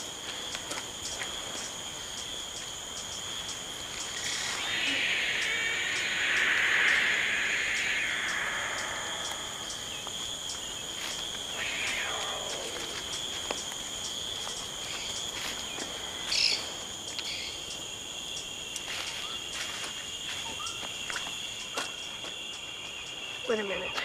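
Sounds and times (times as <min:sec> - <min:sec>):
insects trilling: 0:00.0 - 0:24.0
descending sweep: 0:04.0 - 0:10.8, 0:11.4 - 0:13.7.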